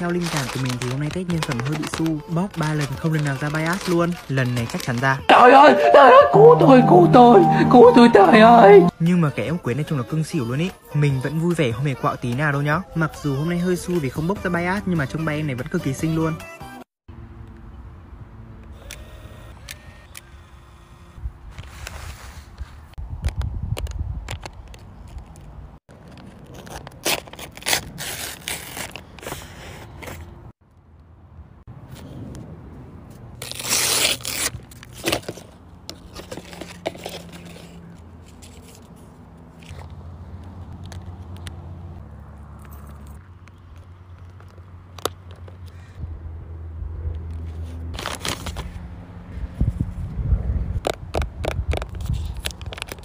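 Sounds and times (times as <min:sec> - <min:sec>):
paper tearing: 0:00.0 - 0:05.2, 0:26.4 - 0:29.4, 0:33.4 - 0:35.4, 0:47.9 - 0:48.7
paper crinkling: 0:00.0 - 0:05.3, 0:47.9 - 0:48.7.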